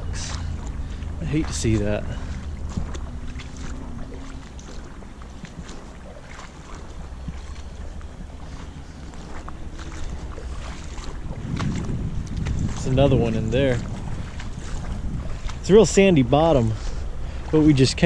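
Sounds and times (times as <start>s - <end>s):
footsteps wading through water: 0.0s - 18.0s
steady low rumble: 0.0s - 18.0s.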